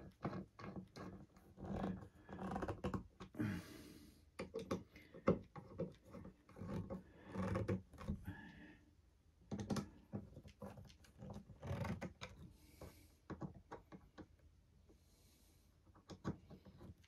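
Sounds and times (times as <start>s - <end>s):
screwdriver creaking and scraping: 0.0s - 3.4s, 4.4s - 8.3s, 9.5s - 12.5s.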